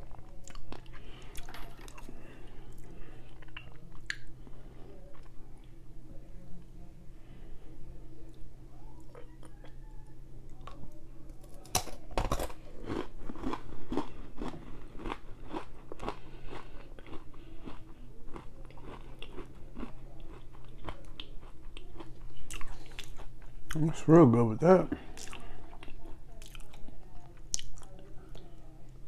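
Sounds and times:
crunchy chewing: 10.5s - 23.9s, 25.0s - 28.5s.

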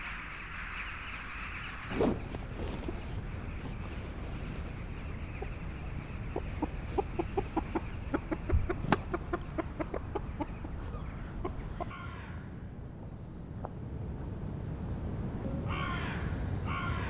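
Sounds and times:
chicken clucking: 2.3s - 12.0s.

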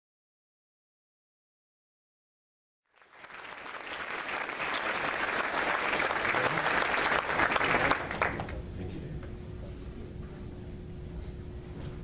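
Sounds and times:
audience applauding: 2.9s - 8.6s.

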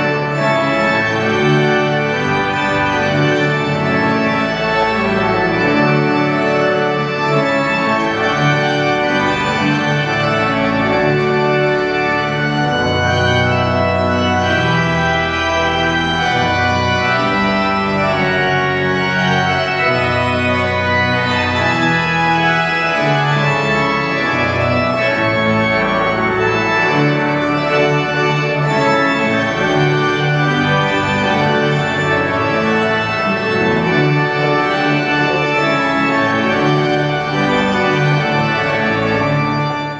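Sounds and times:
church organ playing chords: 0.0s - 39.9s.

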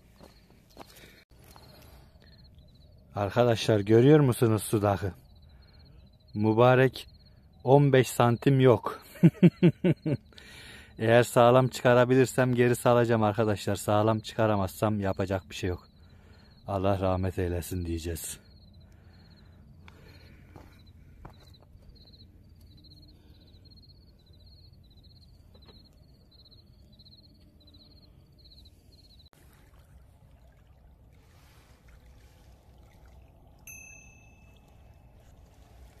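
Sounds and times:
cricket chirping: 0.0s - 11.4s, 12.1s - 29.4s, 33.4s - 36.0s
small bell ringing: 33.6s - 35.1s.

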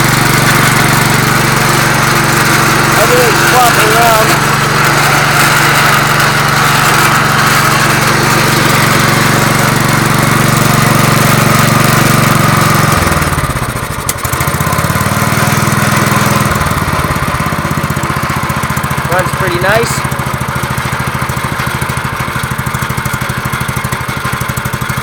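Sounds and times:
single-cylinder engine running: 0.0s - 25.0s.

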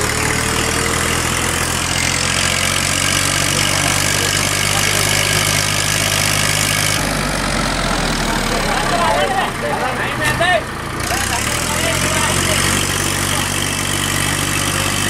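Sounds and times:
tractor engine running: 0.0s - 15.0s.

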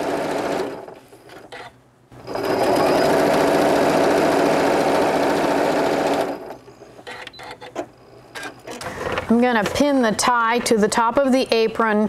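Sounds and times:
electric sewing machine running: 0.0s - 0.9s, 2.3s - 6.6s.

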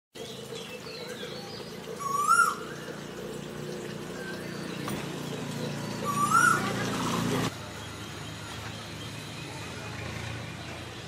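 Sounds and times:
koel rising whistled call: 6.0s - 6.7s.

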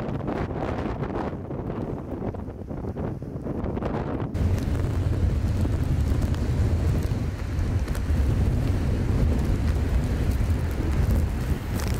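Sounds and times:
wind buffeting microphone: 0.0s - 11.9s
surf breaking on shore: 4.4s - 11.9s.

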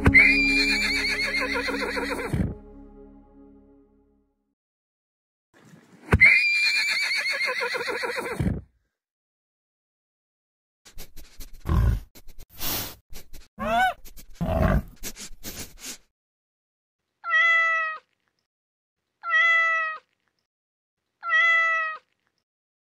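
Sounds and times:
pig grunting and squealing: 11.5s - 12.1s, 13.6s - 15.1s
cat meowing: 13.6s - 14.0s, 17.2s - 18.1s, 19.2s - 20.1s, 21.2s - 22.1s.

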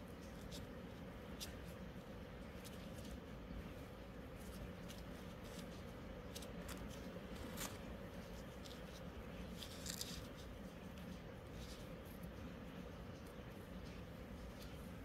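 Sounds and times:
gloved hands rustling net fabric: 0.0s - 15.0s
low background hum: 0.0s - 15.0s.

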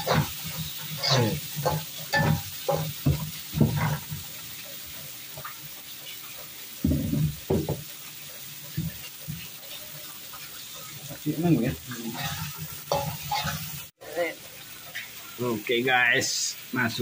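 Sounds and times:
metal spatula scraping wok: 0.0s - 6.4s, 8.9s - 13.9s
sizzling hiss: 0.0s - 17.0s.

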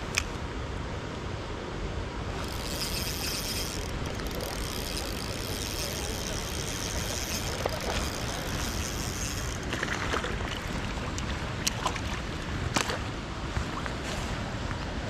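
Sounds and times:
running water: 2.3s - 14.0s.

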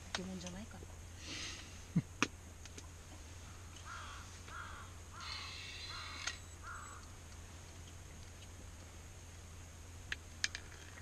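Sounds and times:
crow cawing: 3.4s - 7.1s
sharp clicks: 5.3s - 8.5s.

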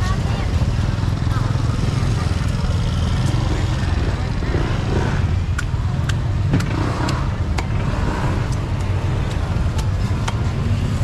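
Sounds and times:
passing motor traffic rumble: 0.0s - 11.0s.

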